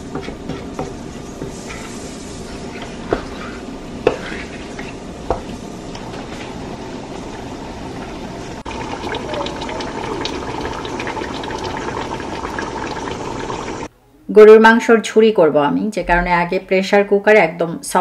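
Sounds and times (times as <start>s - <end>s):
curry simmering and bubbling: 0.0s - 13.9s.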